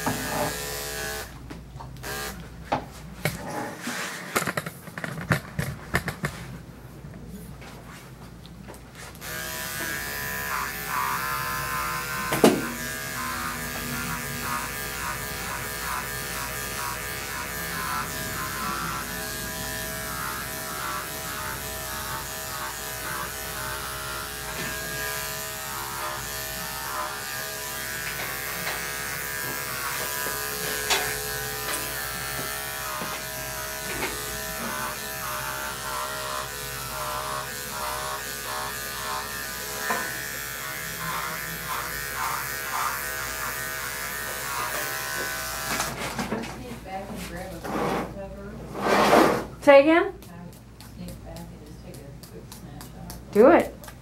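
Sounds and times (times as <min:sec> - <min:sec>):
electric clipper buzzing: 0:00.0 - 0:01.4, 0:02.0 - 0:02.5, 0:09.2 - 0:46.1.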